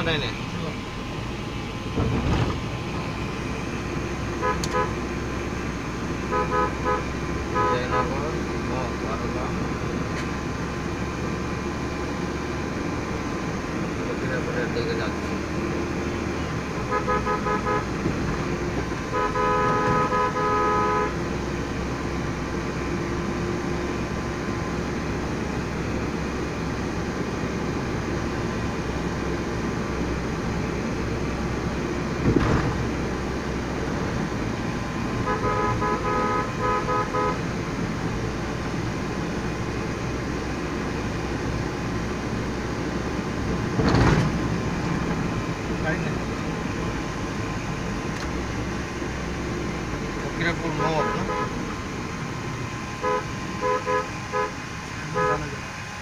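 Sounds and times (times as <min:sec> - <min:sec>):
car road and engine noise: 0:00.0 - 0:56.0
car horn beeps: 0:04.4 - 0:05.1, 0:06.2 - 0:08.3, 0:16.8 - 0:18.1, 0:19.0 - 0:21.2, 0:35.2 - 0:37.5, 0:50.5 - 0:51.7, 0:53.0 - 0:55.6
thump: 0:32.2 - 0:32.8, 0:43.8 - 0:44.4.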